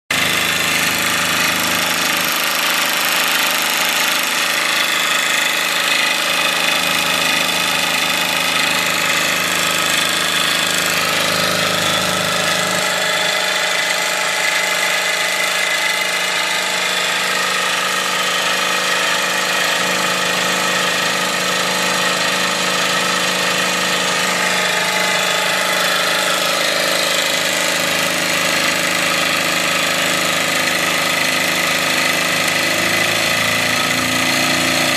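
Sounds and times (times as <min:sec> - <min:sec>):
model steam engine chuffing: 0:00.1 - 0:34.9.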